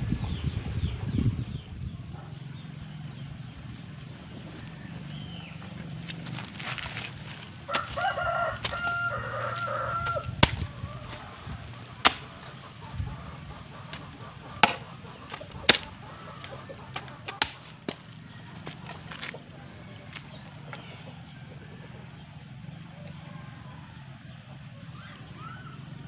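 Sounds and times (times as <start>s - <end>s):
hoe chopping wet soil: 6.2s - 19.4s
rooster crowing: 7.7s - 11.5s.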